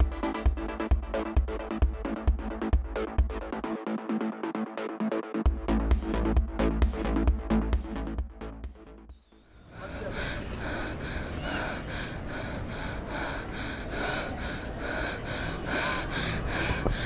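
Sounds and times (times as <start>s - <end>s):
woman panting: 9.7s - 17.0s.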